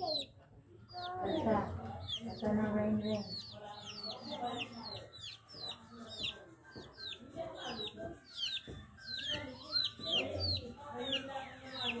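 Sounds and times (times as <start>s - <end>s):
chickens clucking: 0.0s - 12.0s
chicks peeping: 0.0s - 12.0s.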